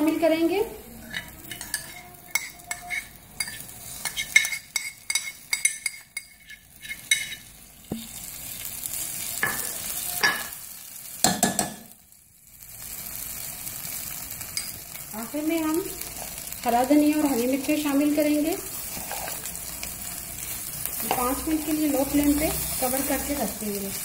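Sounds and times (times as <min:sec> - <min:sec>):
oil sizzling: 0:00.0 - 0:24.0
spatula scraping a steel pot: 0:01.0 - 0:07.5, 0:18.7 - 0:19.5.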